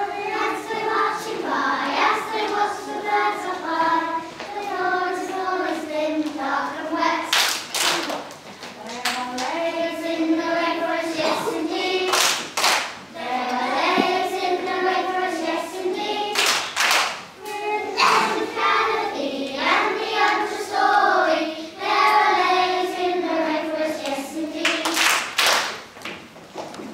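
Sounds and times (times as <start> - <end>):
children singing: 0.0 - 8.1, 8.9 - 12.6, 13.2 - 16.7, 17.4 - 25.2
hand claps: 12.1 - 13.0.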